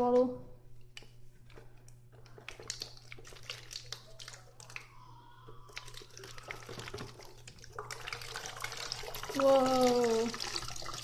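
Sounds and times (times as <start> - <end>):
faint low steady hum: 0.0 - 11.0
plastic bottles clicking and tapping: 5.9 - 7.9.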